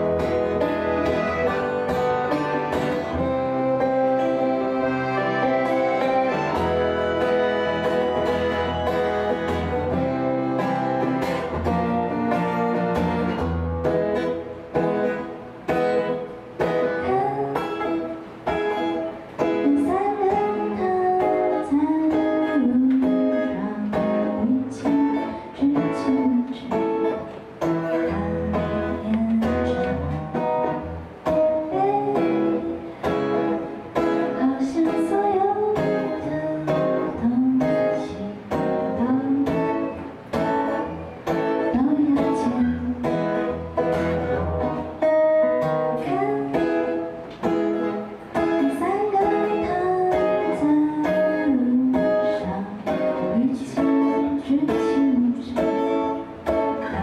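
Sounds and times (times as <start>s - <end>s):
accordion chords: 0.0s - 13.6s
acoustic guitar strumming: 0.0s - 57.0s
woman singing: 16.6s - 44.8s, 45.4s - 57.0s.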